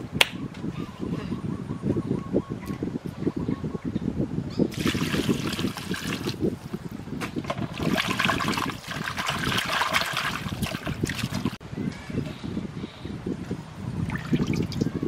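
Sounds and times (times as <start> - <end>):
water splashing in a steel bowl: 4.7 - 6.4, 7.6 - 11.6, 14.1 - 15.0.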